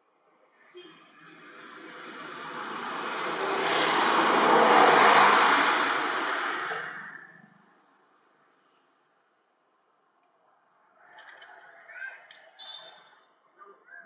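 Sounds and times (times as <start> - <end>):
road vehicle passing by: 1.0 - 7.8.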